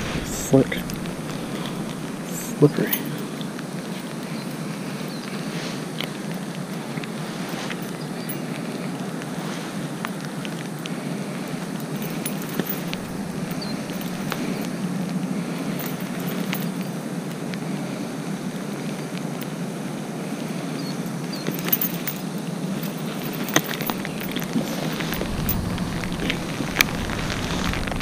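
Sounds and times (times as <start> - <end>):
metallic clicks and clinks: 0.0 - 5.2, 7.0 - 9.4, 11.5 - 17.0, 21.1 - 28.0
rain: 0.0 - 21.9, 23.2 - 28.0
wind: 0.0 - 28.0.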